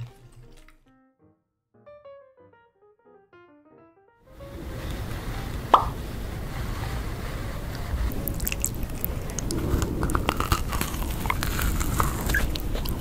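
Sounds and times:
wet mouth sounds: 0.0 - 0.8, 5.7 - 6.0, 8.1 - 13.0
biting crisp macaron: 0.0 - 0.9, 8.1 - 13.0
steady low rumble: 4.3 - 13.0.

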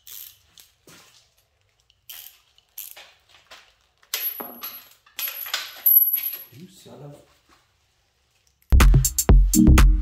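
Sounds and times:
metal tools clinking and rattling: 0.0 - 6.6.

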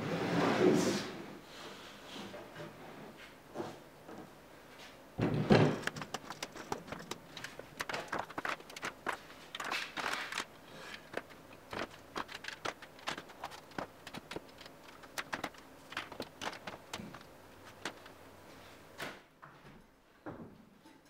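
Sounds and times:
wood knocks and clicks: 5.2 - 18.1.

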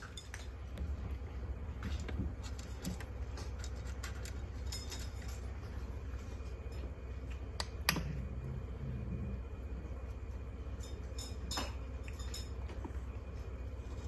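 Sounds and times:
steady low hum: 0.0 - 14.0
feeding dishes clinking: 10.7 - 13.2.

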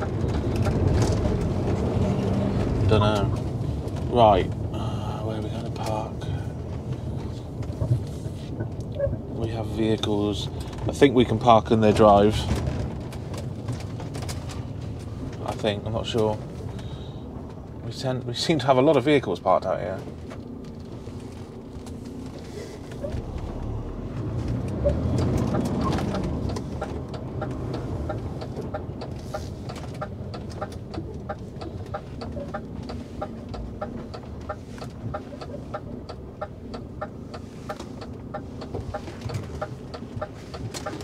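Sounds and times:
diesel truck engine running: 20.4 - 41.0
turn indicator ticking: 24.2 - 41.0.

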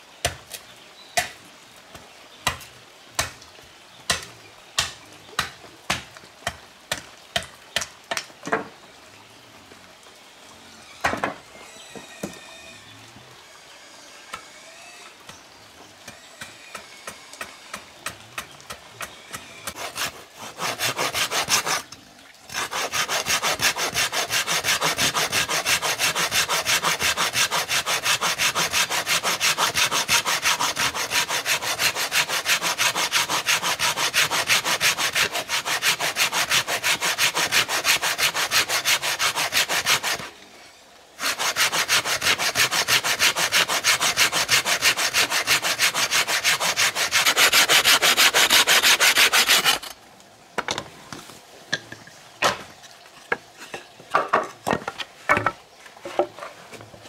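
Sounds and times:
hand saw cutting wood: 16.4 - 21.9, 22.5 - 40.3, 41.2 - 50.0.

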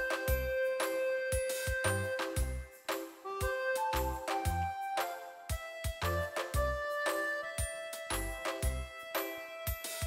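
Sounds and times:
light tune with bell-like tones: 0.0 - 10.0.

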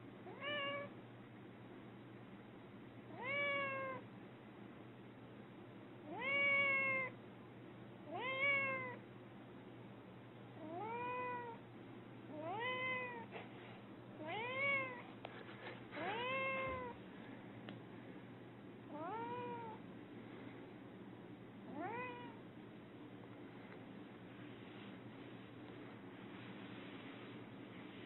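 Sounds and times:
cat meowing: 0.3 - 0.9, 3.1 - 4.0, 6.1 - 7.1, 8.1 - 9.0, 10.6 - 11.6, 12.3 - 13.3, 14.2 - 15.0, 16.0 - 17.0, 18.9 - 19.8, 21.7 - 22.4.

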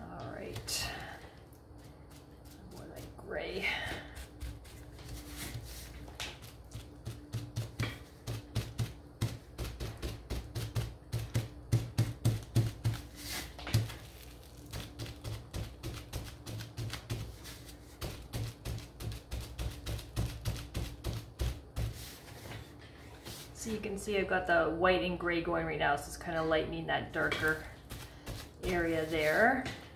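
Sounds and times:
bubble wrap dabbing on wood: 0.0 - 23.8, 27.1 - 29.9.

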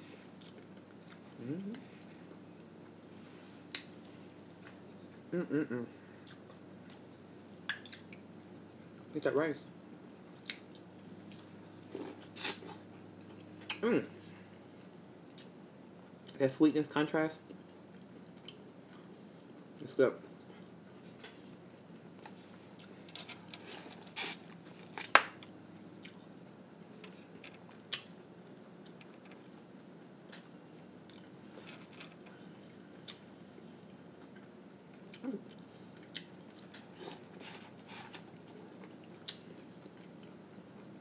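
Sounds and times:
wet smacks and chewing: 0.4 - 1.2, 7.7 - 8.2, 10.4 - 15.5, 26.0 - 26.4, 27.0 - 29.6, 33.0 - 33.2, 34.2 - 37.4, 38.1 - 40.4.

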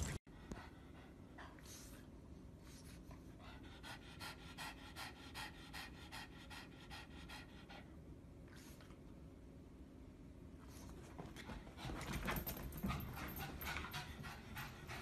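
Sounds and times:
dog panting: 0.4 - 8.0, 11.4 - 15.0.

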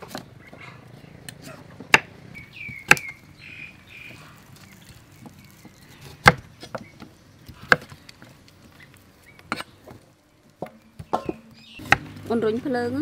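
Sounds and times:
knife chopping on wooden board: 1.5 - 2.1, 5.2 - 8.0.

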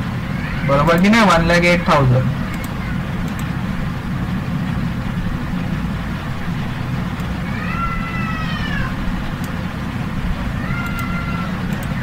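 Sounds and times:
low background rumble: 0.0 - 12.0
cat meowing: 7.5 - 9.0, 10.5 - 12.0.

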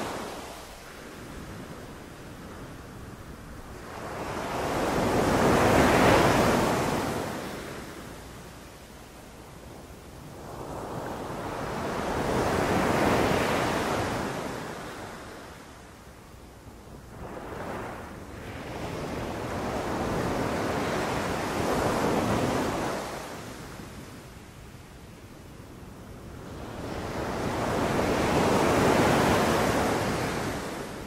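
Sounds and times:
sea waves breaking on beach: 0.0 - 8.2, 26.5 - 31.0.

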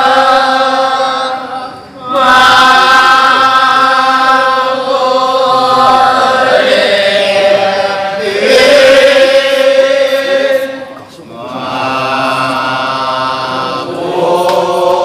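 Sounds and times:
men chanting in chorus: 0.0 - 15.0.

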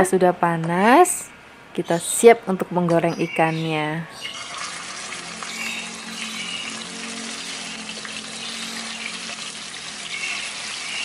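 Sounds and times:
oil sizzling in a frying pan: 4.3 - 11.0.

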